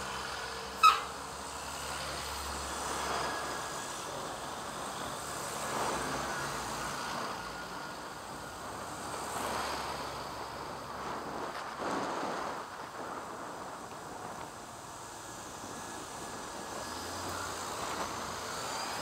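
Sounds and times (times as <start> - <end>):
car engines running: 0.0 - 19.0
vehicles passing: 0.0 - 19.0.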